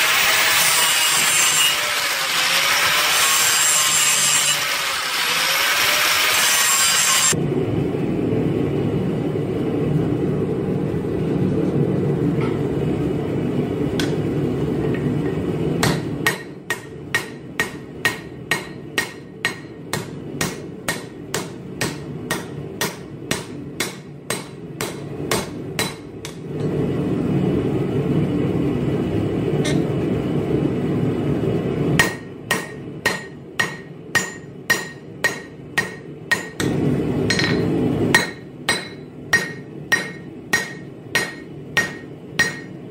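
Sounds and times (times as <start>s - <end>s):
hammer striking steel on anvil: 14.9s - 26.7s, 29.6s - 29.9s, 32.0s - 42.8s.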